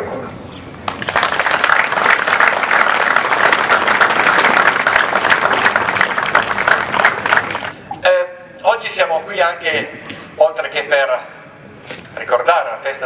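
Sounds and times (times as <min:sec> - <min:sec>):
crowd applauding: 0:00.8 - 0:07.8.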